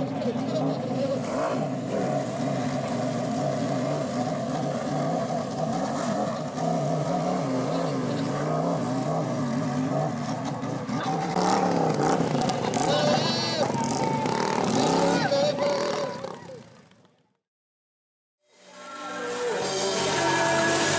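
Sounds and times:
motorcycle engines at low revs: 0.0 - 17.4.

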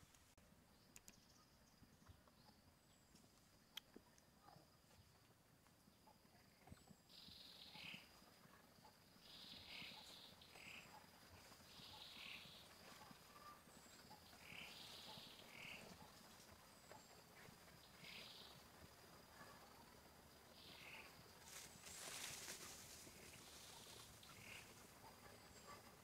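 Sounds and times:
faint high chirps: 5.9 - 26.0.

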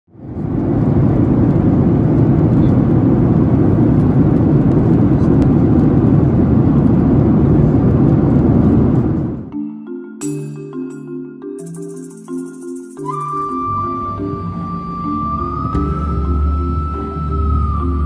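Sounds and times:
jet airliner cabin noise: 0.1 - 9.6.

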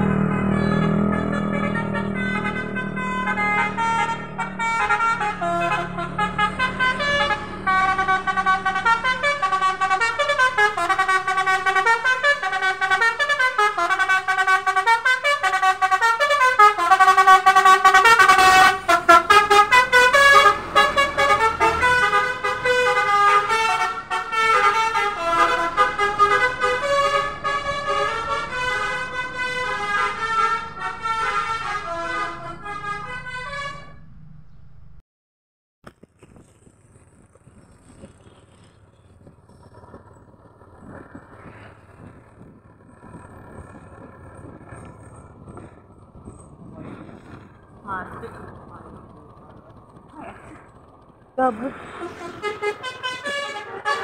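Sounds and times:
musical bus horn melodies: 0.0 - 34.2, 51.9 - 54.0.

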